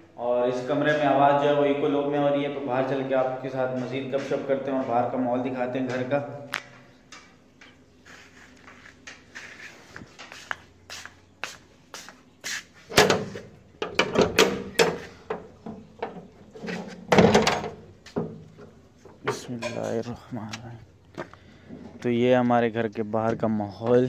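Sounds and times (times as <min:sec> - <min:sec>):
door latch and bolt clicking: 0:12.9 - 0:15.4.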